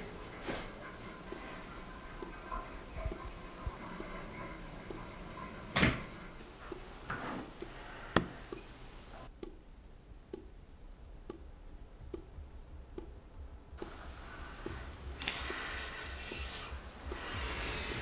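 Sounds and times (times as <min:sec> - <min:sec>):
steady ticking: 0:00.0 - 0:18.0.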